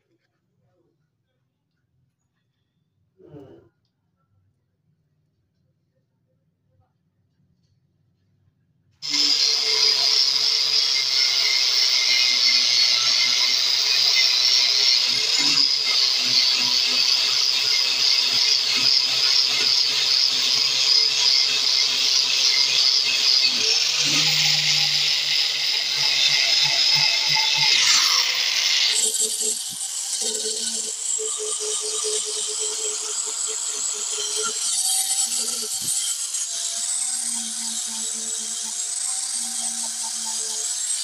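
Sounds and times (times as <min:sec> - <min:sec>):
angle grinder grinding metal: 0:09.0 - 0:41.0.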